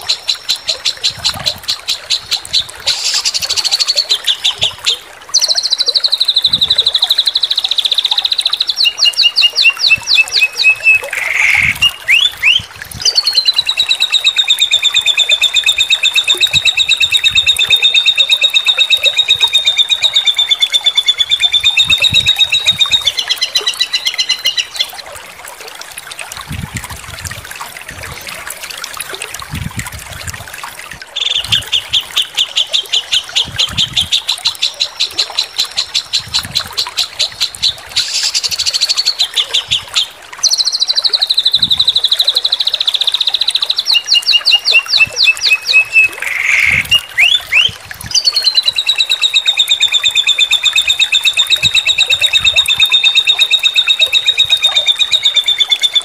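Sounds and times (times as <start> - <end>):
songbird rapid trills: 0.0 - 25.0, 31.2 - 39.8.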